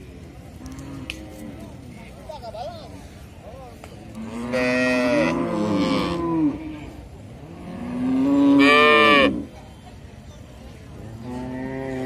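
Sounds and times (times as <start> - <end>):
cow mooing: 4.2 - 6.9.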